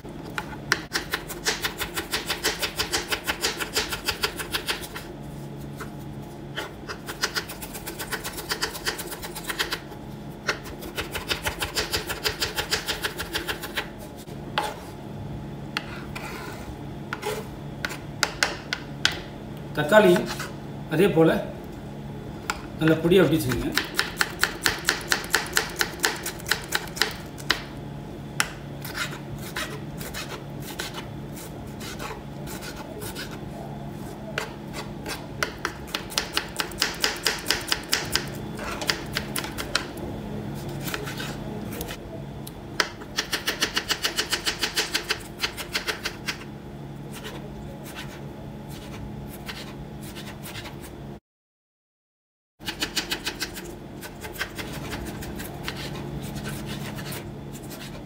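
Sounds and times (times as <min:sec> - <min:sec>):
steady low hum: 0:00.0 - 0:51.2, 0:52.6 - 0:58.0
knife chopping on plastic board: 0:17.1 - 0:19.3, 0:23.5 - 0:27.7, 0:34.3 - 0:39.9.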